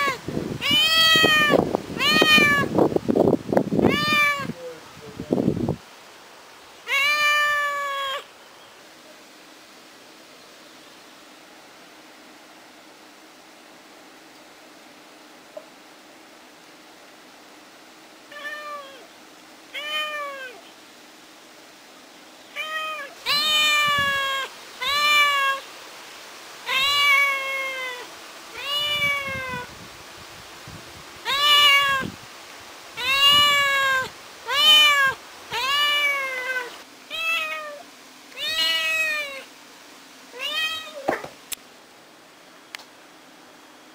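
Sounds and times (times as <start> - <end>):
kitten meowing: 0.0 - 2.7, 3.9 - 4.6, 6.9 - 8.3, 18.3 - 19.0, 19.8 - 20.6, 22.6 - 25.6, 26.7 - 29.7, 31.3 - 32.1, 33.0 - 37.8, 38.4 - 39.5, 40.4 - 41.3.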